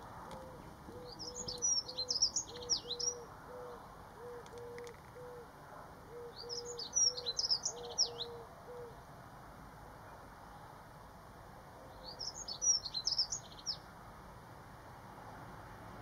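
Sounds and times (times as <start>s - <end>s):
bird warbling song: 0.4s - 5.4s, 6.2s - 8.9s, 11.9s - 13.8s.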